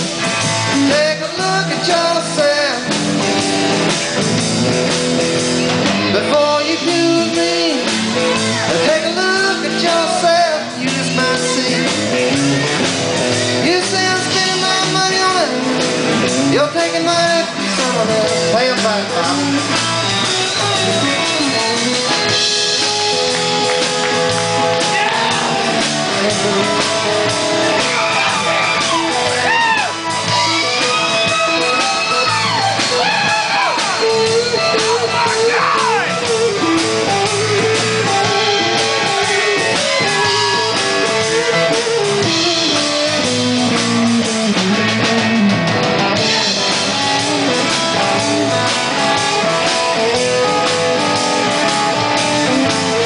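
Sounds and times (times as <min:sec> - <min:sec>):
bass: 0:00.0 - 0:53.0
drums: 0:00.0 - 0:53.0
electric guitar lead: 0:00.0 - 0:53.0.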